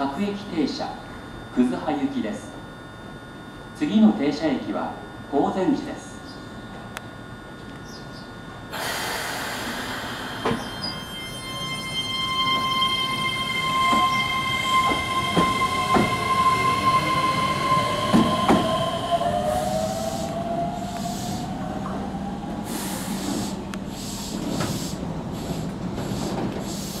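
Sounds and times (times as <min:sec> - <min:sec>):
train motor whine: 0:08.5 - 0:27.0
train rolling in and stopping: 0:08.7 - 0:27.0
high-pitched wheel squeal: 0:10.1 - 0:21.4.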